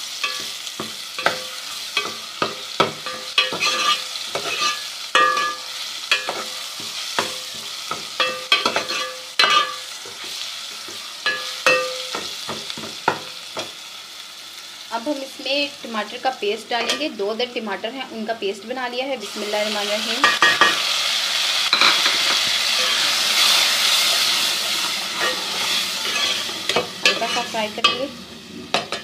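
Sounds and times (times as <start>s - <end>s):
food sizzling in a pan: 0.0s - 29.0s
spoon knocking and scraping pan: 0.2s - 13.8s, 16.8s - 17.1s, 20.2s - 20.8s, 21.7s - 28.1s, 28.7s - 29.0s.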